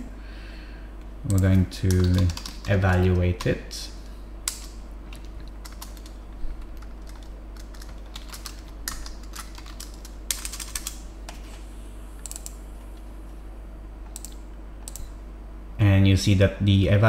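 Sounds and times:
steady low hum: 0.0 - 17.0
keyboard typing: 1.3 - 3.6, 4.5 - 11.4, 12.2 - 12.6.

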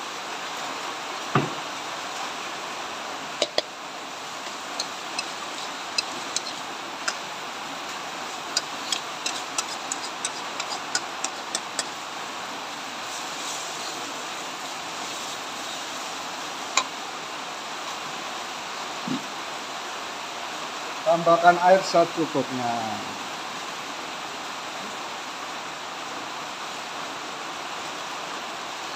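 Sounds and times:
steady frying hiss: 0.0 - 28.9
metal spatula scraping a wok: 4.4 - 7.2, 8.5 - 12.0, 13.1 - 14.1.

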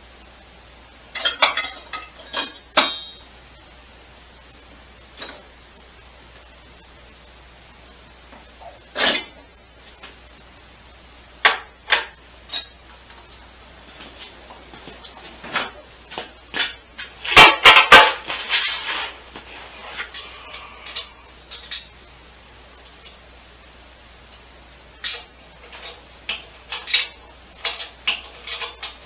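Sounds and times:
metal hand tools clanking: 1.2 - 3.2, 25.0 - 29.0.

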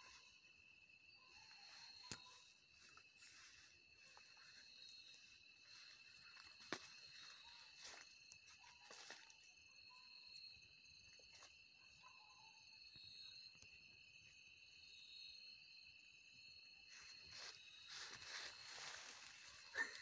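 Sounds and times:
night insects chirring: 0.0 - 20.0
leaves and brush rustling: 16.9 - 20.0.

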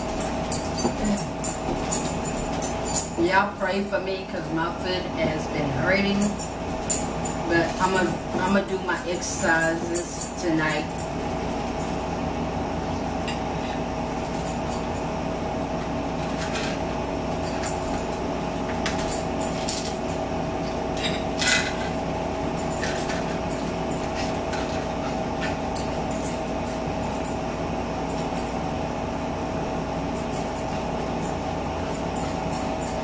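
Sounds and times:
background hum: 0.0 - 33.0
forks clicking and scraping on plates: 16.2 - 16.8, 18.8 - 20.2, 21.0 - 27.3.

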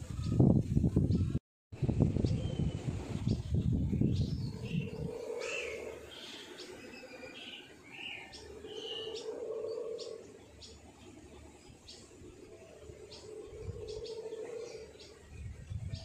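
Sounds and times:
small birds chirping: 1.0 - 16.0.

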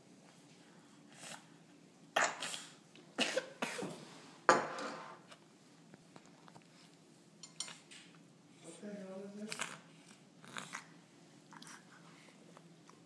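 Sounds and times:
person coughing: 3.2 - 4.0.

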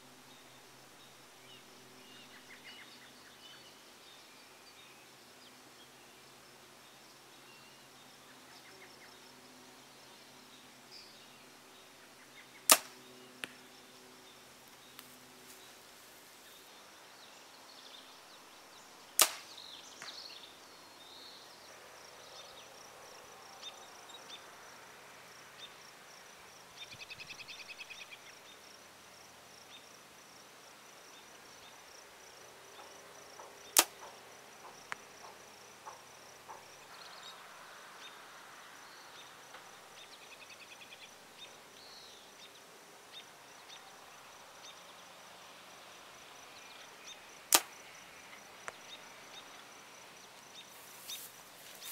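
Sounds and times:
birds: 0.0 - 22.9, 32.6 - 51.9
insects: 0.0 - 51.9
arrows striking foam targets: 12.7 - 13.0, 19.2 - 19.5
bow release snap: 12.7 - 13.6, 19.2 - 20.2, 33.8 - 34.1, 47.5 - 47.8.

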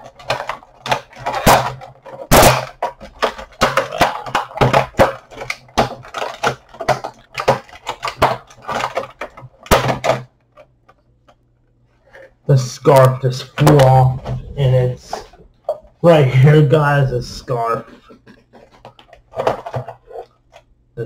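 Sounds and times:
plastic packaging crackling and snapping: 0.0 - 11.4.

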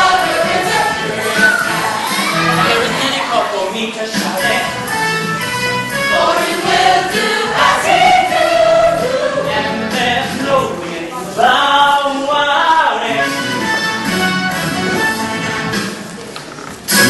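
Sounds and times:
ensemble singing in chorus: 0.0 - 2.9, 6.0 - 10.4.

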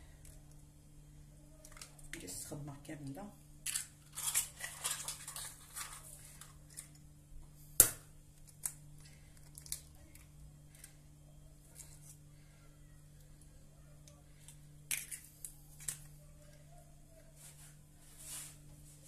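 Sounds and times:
faint low hum: 0.0 - 19.0
crackling and rustling: 3.7 - 7.1.

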